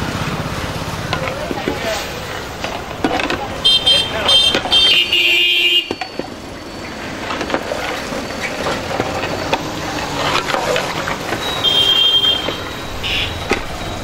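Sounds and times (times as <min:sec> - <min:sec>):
street traffic: 0:00.0 - 0:14.0
vehicle horn: 0:03.6 - 0:06.0, 0:11.4 - 0:13.6.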